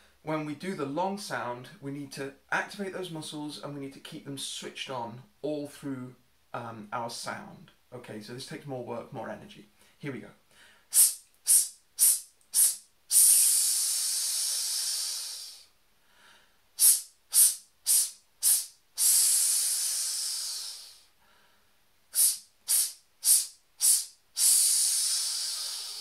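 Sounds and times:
man hissing through teeth: 10.9 - 15.8, 16.8 - 21.2, 22.1 - 26.0.

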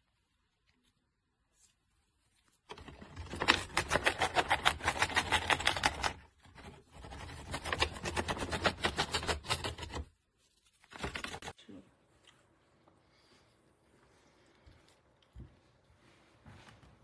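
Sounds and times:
bird tearing paper bag: 2.6 - 10.1, 10.8 - 11.6.

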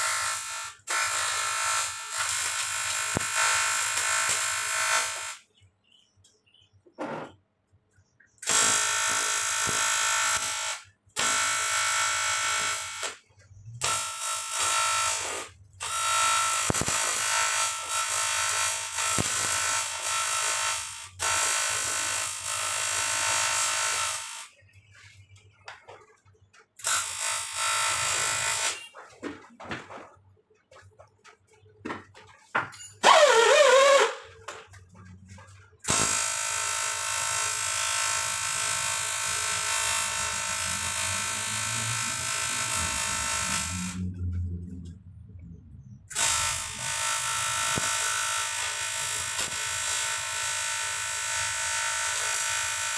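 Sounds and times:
arc welding buzzing hiss: 0.0 - 5.4, 8.4 - 13.2, 13.8 - 24.5, 26.8 - 28.9, 35.9 - 44.0, 46.1 - 52.9.

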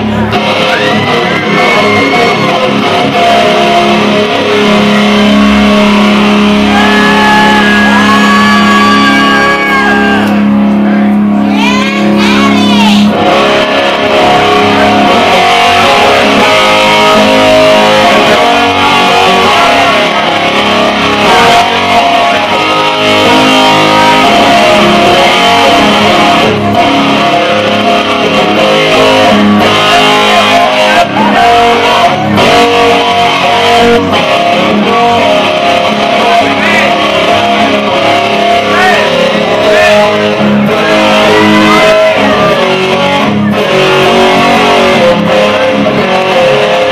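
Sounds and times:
loud electric guitar rock: 0.0 - 46.9.

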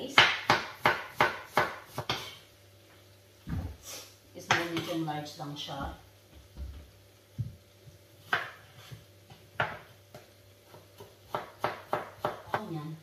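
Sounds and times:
knife slicing potato on board: 0.0 - 2.4, 8.2 - 12.7.

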